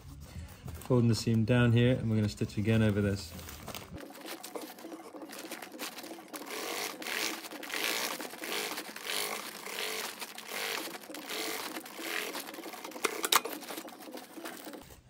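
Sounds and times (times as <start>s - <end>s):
crinkly fabric rustling: 0.6s - 15.0s
sewing machine stitching: 3.8s - 15.0s.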